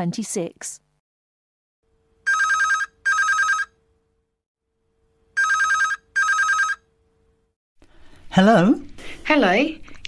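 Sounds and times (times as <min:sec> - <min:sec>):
telephone ringing: 0:02.2 - 0:03.8, 0:05.4 - 0:06.9.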